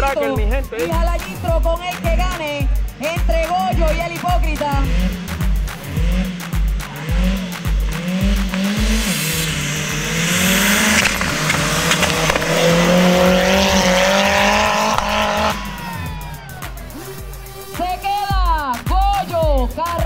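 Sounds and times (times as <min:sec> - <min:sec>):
engine accelerating hard: 0:00.0 - 0:20.0
music with a steady beat: 0:00.0 - 0:20.0
loud rushing noise: 0:04.9 - 0:17.9.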